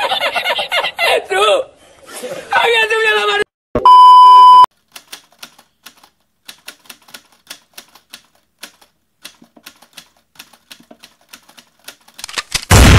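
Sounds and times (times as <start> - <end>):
test tone beep: 3.8 - 4.7
typewriter key clacks: 4.9 - 12.7.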